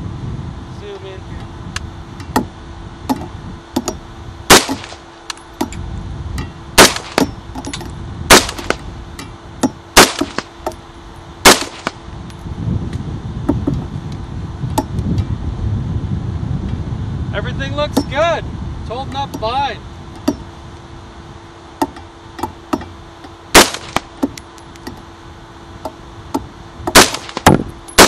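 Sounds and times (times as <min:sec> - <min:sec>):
rifle shots: 0:04.5 - 0:05.1, 0:06.8 - 0:07.3, 0:08.3 - 0:08.8, 0:10.0 - 0:10.5, 0:11.4 - 0:12.0, 0:23.5 - 0:24.1, 0:26.9 - 0:28.0.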